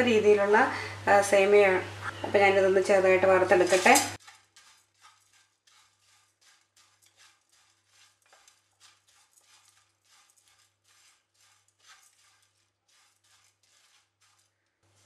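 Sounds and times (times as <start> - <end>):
wooden spatula scraping in pan: 3.4 - 15.0.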